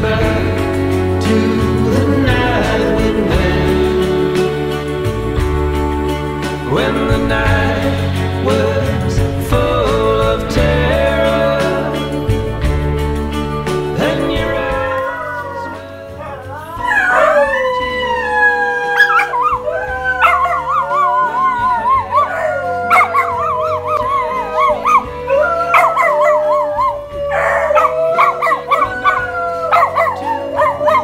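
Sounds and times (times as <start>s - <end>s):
background music: 0.0s - 31.0s
dog howling: 14.2s - 31.0s.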